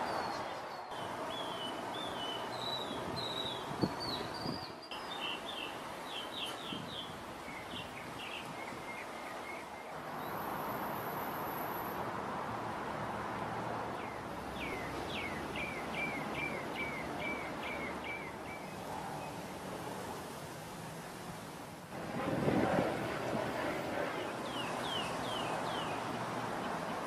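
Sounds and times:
small birds chirping: 0:00.0 - 0:10.4, 0:14.0 - 0:19.4, 0:24.3 - 0:27.0
outdoor background hiss: 0:00.0 - 0:27.0.

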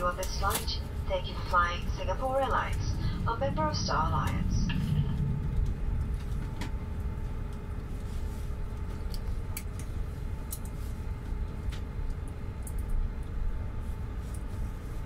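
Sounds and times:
aircraft cabin low rumble: 0:00.0 - 0:15.0
faint constant hum: 0:00.0 - 0:15.0.

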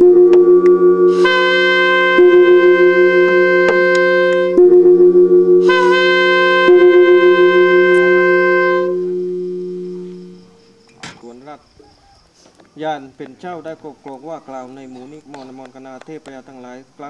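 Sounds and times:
conch shell trumpet blowing: 0:00.0 - 0:10.8.

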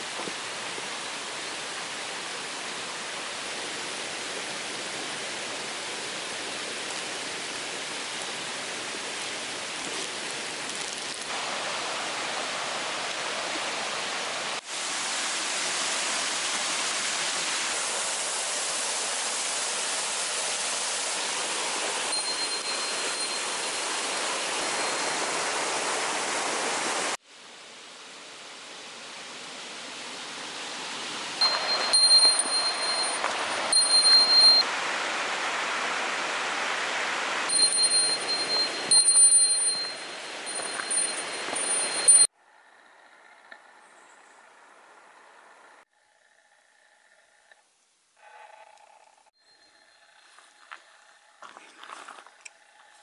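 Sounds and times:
mountain stream rushing: 0:00.0 - 0:27.2, 0:28.0 - 0:42.3.

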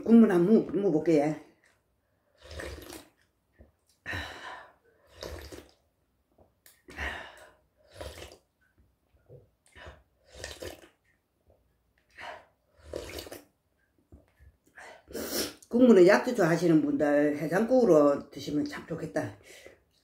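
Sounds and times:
person slurping broth: 0:02.2 - 0:03.3, 0:05.0 - 0:05.8, 0:06.8 - 0:08.5, 0:09.8 - 0:11.0, 0:12.7 - 0:13.5.

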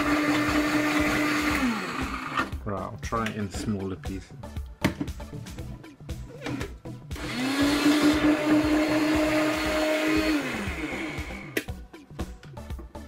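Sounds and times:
blender motor whine: 0:00.0 - 0:02.6, 0:06.4 - 0:11.7.

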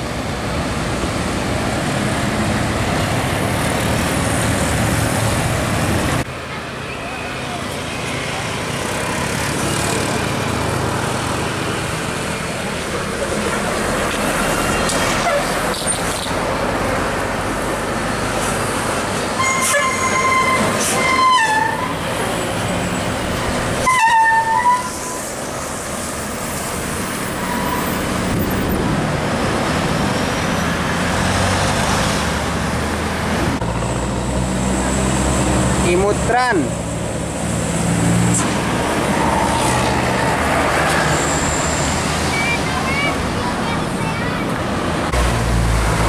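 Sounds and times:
buses driving past: 0:00.0 - 0:46.0
musical bus air horn: 0:19.4 - 0:22.0, 0:23.8 - 0:25.2.

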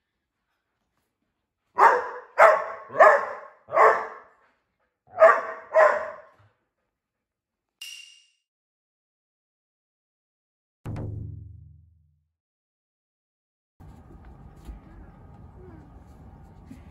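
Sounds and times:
dog barking: 0:01.8 - 0:04.4, 0:05.1 - 0:06.4.

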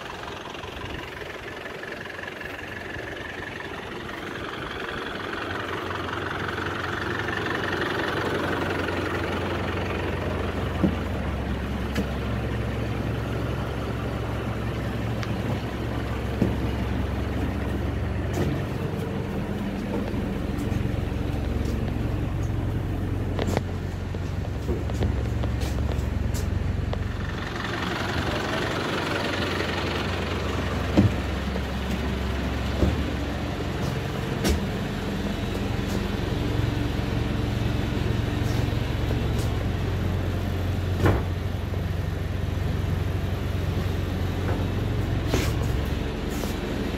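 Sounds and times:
engine idling with low hum: 0:00.0 - 0:46.9
hiss: 0:45.2 - 0:46.9.

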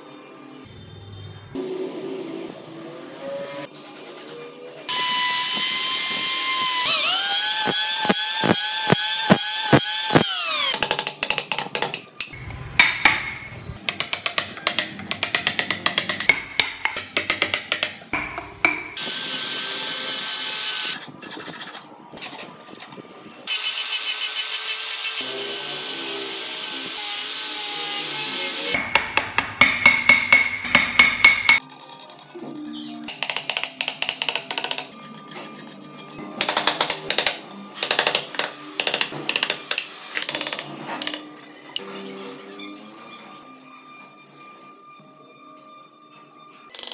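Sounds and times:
chisel clicking and scraping: 0:10.1 - 0:18.9, 0:33.1 - 0:41.2.

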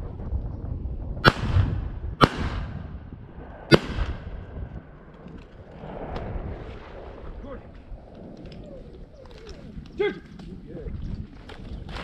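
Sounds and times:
shotgun shots with echo: 0:01.2 - 0:03.0, 0:03.7 - 0:04.4.

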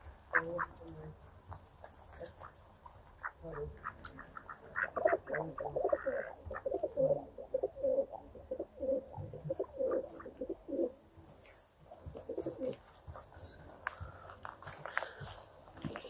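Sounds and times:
pigeons cooing: 0:04.3 - 0:11.1, 0:12.1 - 0:12.8.

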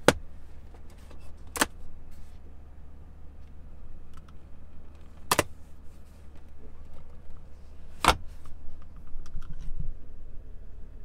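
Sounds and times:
steady low hum: 0:00.0 - 0:11.0
plastic cupholder clicks: 0:05.2 - 0:05.5.

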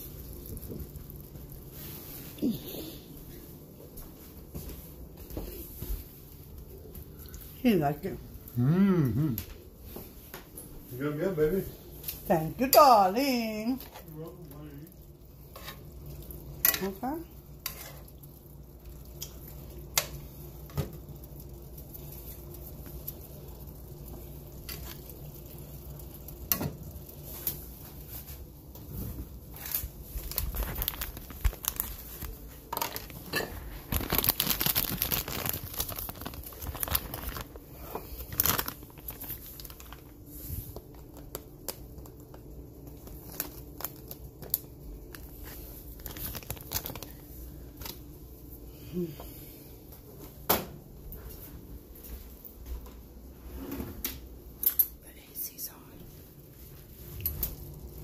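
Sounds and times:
rustling and crinkling: 0:00.0 - 0:08.6, 0:14.9 - 0:48.6.

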